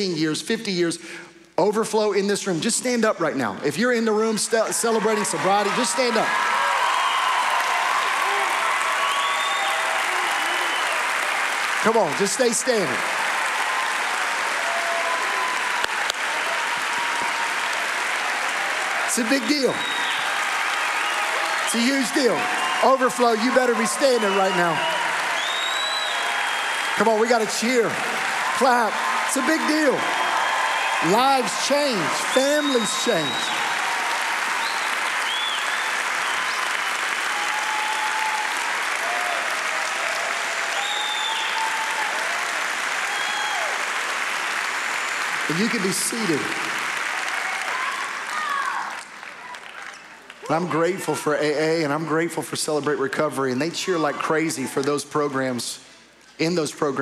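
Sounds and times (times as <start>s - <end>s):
crowd applauding: 3.9s - 52.8s
voices cheering and calling out: 11.8s - 35.6s.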